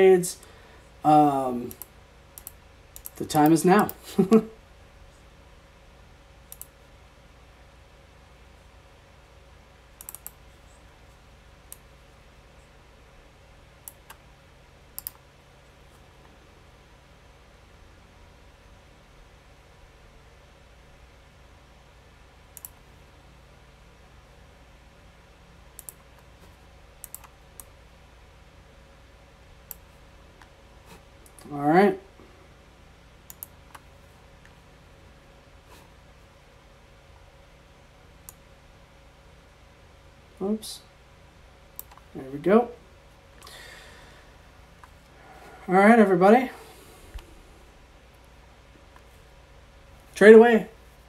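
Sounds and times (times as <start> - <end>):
faint steady hum: 0.0 - 51.0
computer mouse clicks: 1.7 - 4.0, 6.5 - 6.8, 10.0 - 10.4, 13.8 - 14.2, 15.0 - 15.2, 22.5 - 22.8, 25.8 - 27.7, 33.3 - 34.6, 41.8 - 42.1.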